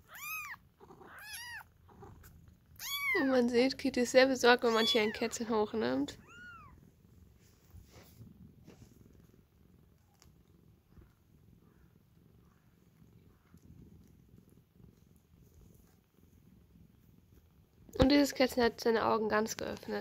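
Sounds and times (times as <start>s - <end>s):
cat meowing: 0.0s - 1.7s, 2.8s - 3.2s, 4.6s - 5.4s, 6.1s - 6.8s
cat purring: 0.0s - 20.0s
soft rustles: 6.1s - 11.8s, 12.4s - 18.3s.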